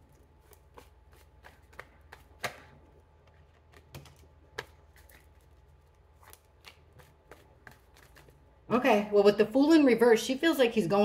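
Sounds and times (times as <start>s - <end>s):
cards being shuffled: 0.3s - 8.4s.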